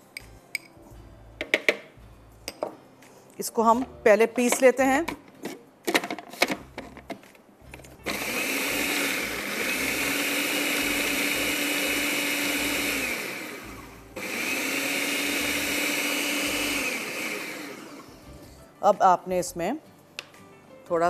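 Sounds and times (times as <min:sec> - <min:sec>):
blender motor whining: 0:08.1 - 0:18.2.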